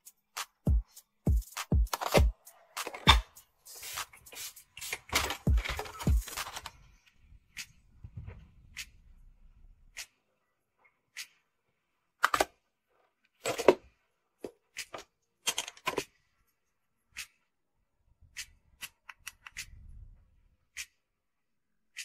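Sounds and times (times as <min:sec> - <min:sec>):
plastic markers clicking and knocking: 0:01.9 - 0:06.8, 0:18.3 - 0:19.8.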